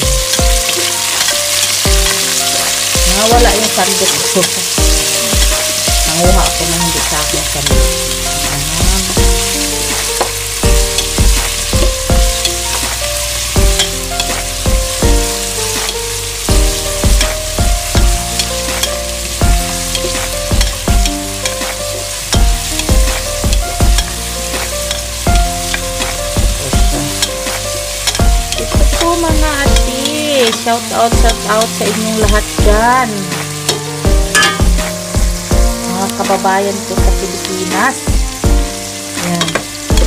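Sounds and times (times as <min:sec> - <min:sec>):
onions sizzling in hot oil: 0:00.0 - 0:40.0
spoon knocking against pot: 0:34.3 - 0:34.8.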